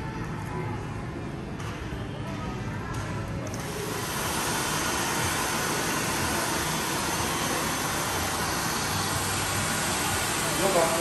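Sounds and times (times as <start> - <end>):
hair dryer blowing: 3.6 - 11.0.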